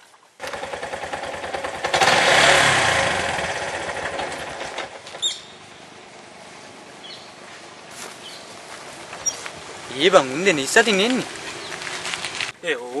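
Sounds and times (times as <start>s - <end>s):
auto-rickshaw engine running: 0.4s - 7.0s, 8.9s - 12.6s.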